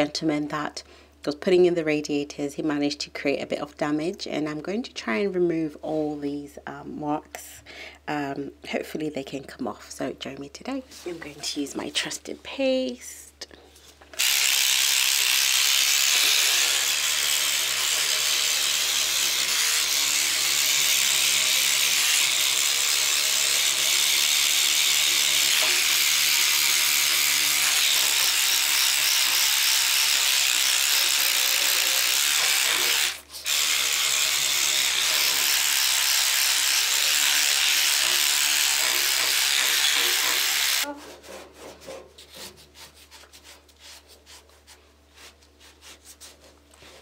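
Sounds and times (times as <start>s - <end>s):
electric scrubbing brush buzzing: 14.2s - 40.9s.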